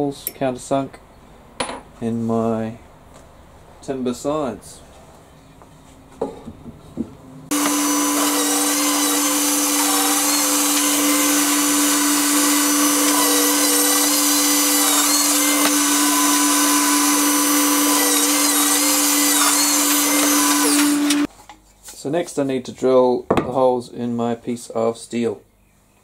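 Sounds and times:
drill bit boring into wood: 7.5s - 21.3s
drill press motor running: 7.5s - 21.3s.

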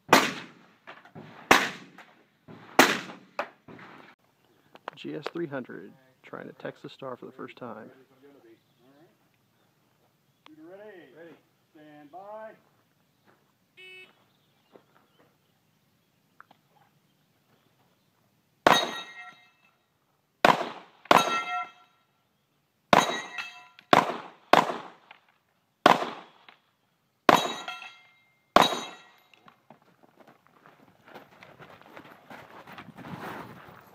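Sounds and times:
rifle shots: 0.1s - 0.7s, 1.3s - 2.0s, 2.7s - 3.4s, 20.4s - 21.7s, 22.9s - 25.0s, 25.8s - 26.5s, 28.6s - 29.1s
ring of struck steel targets: 18.7s - 19.7s, 21.1s - 22.0s, 22.9s - 23.9s, 27.3s - 29.4s.

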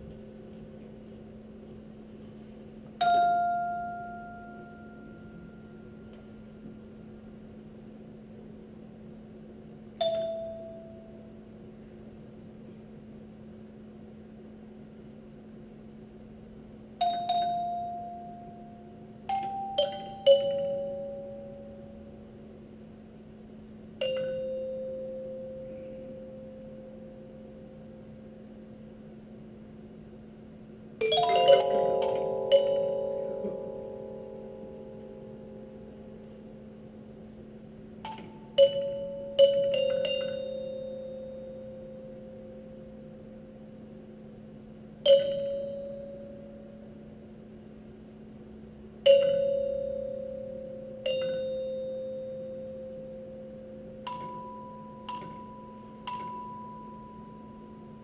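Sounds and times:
steady low hum: 0.0s - 58.0s
glockenspiel notes ringing: 17.0s - 22.2s, 31.0s - 37.0s, 38.1s - 42.9s, 45.1s - 46.8s, 49.1s - 58.0s.

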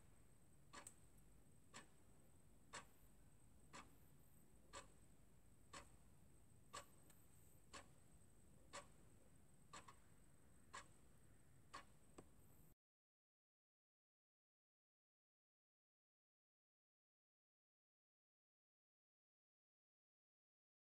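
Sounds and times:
faint regular ticking: 0.1s - 12.8s.

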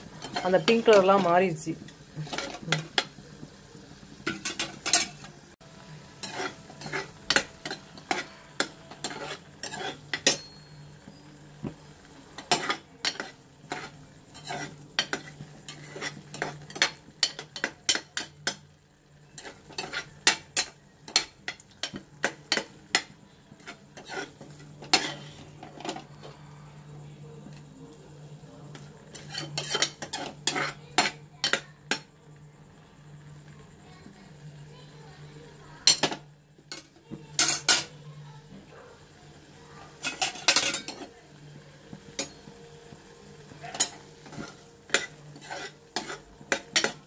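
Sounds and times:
metal ladle scraping metal pan: 6.1s - 10.6s, 12.4s - 18.6s, 19.3s - 21.3s, 23.6s - 26.1s, 29.1s - 31.6s, 43.7s - 47.0s.

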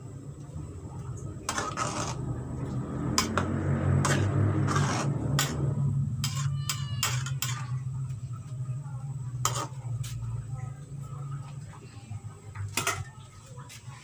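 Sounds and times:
metal ladle scraping a pan: 1.4s - 8.1s, 9.4s - 10.2s.

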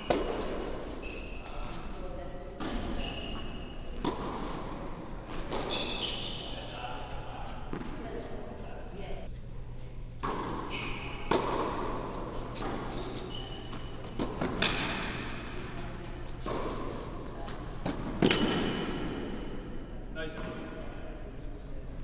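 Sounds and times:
racket hitting tennis ball: 0.0s - 1.0s, 2.6s - 3.2s, 4.0s - 6.2s, 10.2s - 19.5s
tennis ball bouncing: 0.0s - 1.0s, 2.6s - 3.2s, 4.0s - 6.1s, 7.1s - 8.3s, 10.2s - 19.3s.

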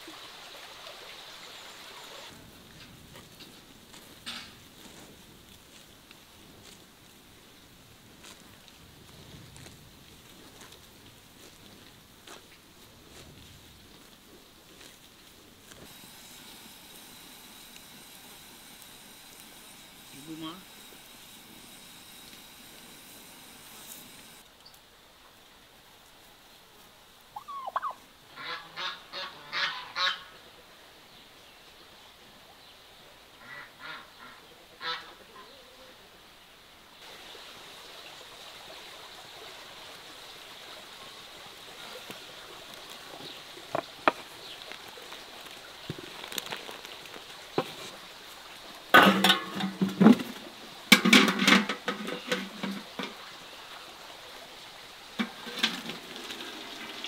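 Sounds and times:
pot boiling with bubbling hiss: 0.0s - 28.0s, 37.0s - 57.0s
turkey gobbling: 27.4s - 30.3s, 33.4s - 35.8s
clattering and scraping: 49.0s - 53.2s, 55.2s - 56.5s.

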